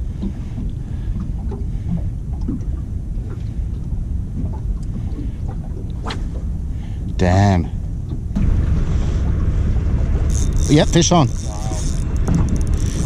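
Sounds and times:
wind on microphone: 0.0 - 13.0
faint ticks: 11.3 - 13.0.

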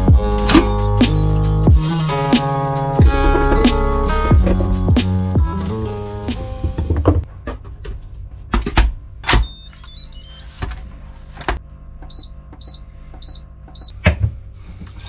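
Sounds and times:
knocks and clunks: 3.0 - 5.6, 6.3 - 9.6.

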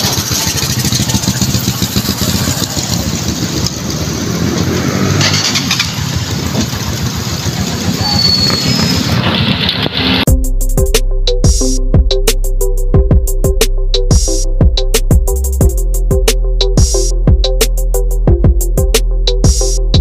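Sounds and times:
motorcycle engine running: 0.0 - 10.5.

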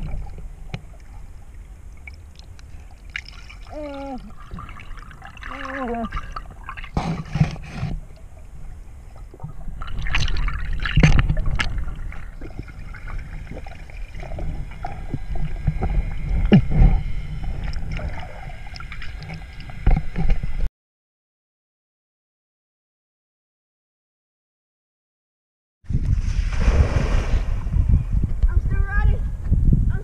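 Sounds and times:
underwater rumble of moving water: 0.0 - 20.7.

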